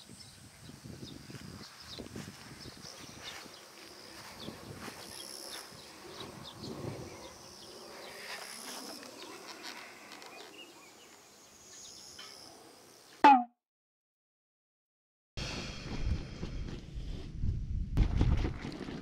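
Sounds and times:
insects buzzing and trilling: 0.0 - 13.1.

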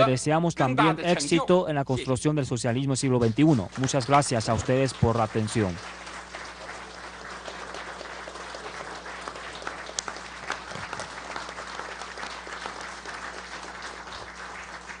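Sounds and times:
steady low hum: 0.0 - 15.0
crowd applauding: 3.2 - 15.0.

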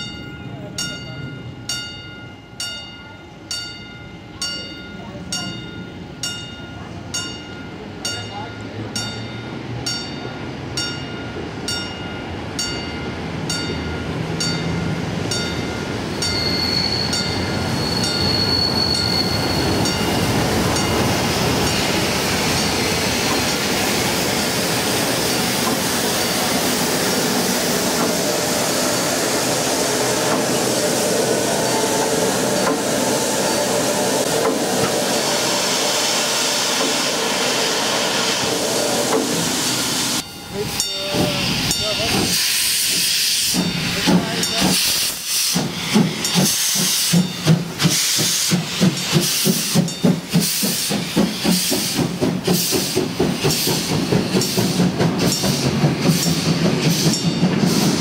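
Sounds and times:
steam locomotive rumble and hiss: 0.0 - 58.0
high steady squeal: 16.2 - 20.3
bell striking: 40.2 - 42.1.

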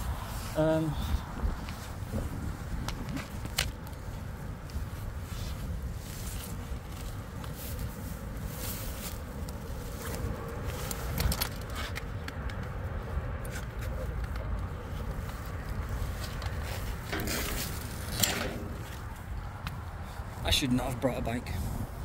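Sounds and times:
bicycle rustling and knocking: 1.6 - 8.0, 13.5 - 20.3.

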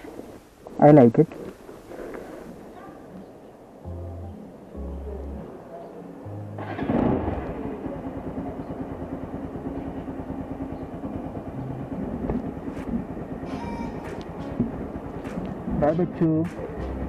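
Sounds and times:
motorcycle engine idling: 6.3 - 13.5.

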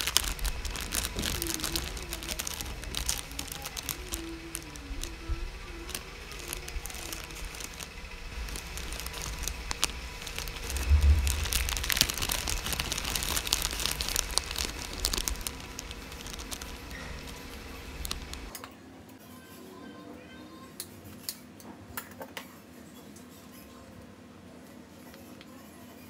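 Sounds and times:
plastic sachets crinkling: 0.0 - 18.6
low bump: 8.0 - 18.1.

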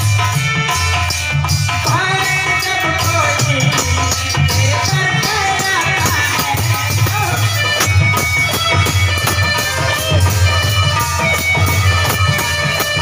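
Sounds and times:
drums beating: 0.0 - 13.0.

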